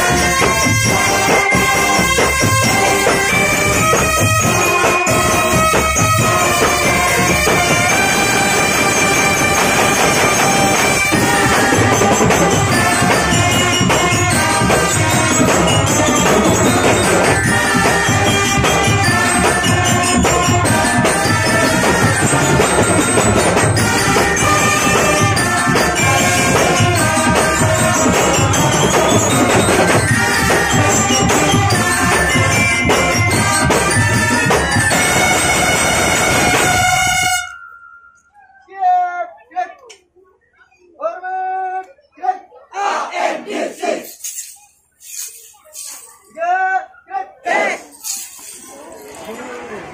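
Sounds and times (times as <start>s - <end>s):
brass marching band playing: 0.0s - 37.7s
percussion keeping the beat: 0.0s - 38.8s, 42.8s - 49.5s.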